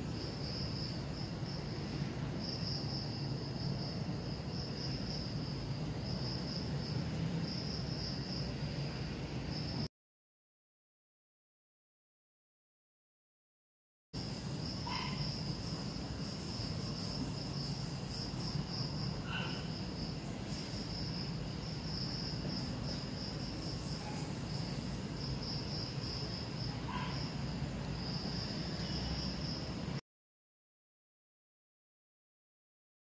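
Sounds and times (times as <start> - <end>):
crickets chirping: 0.0 - 9.9, 14.2 - 30.0.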